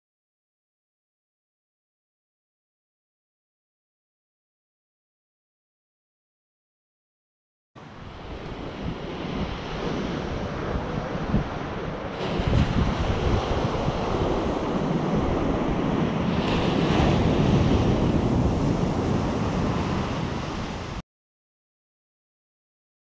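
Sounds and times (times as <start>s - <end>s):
ocean surf breaking on beach: 7.8s - 21.0s
wind buffeting microphone: 7.8s - 21.0s.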